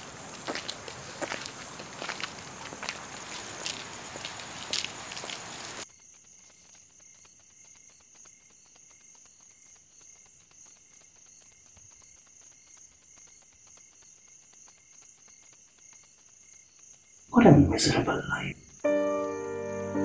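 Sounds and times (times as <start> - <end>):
pulsing insect trill: 5.8 - 20.0.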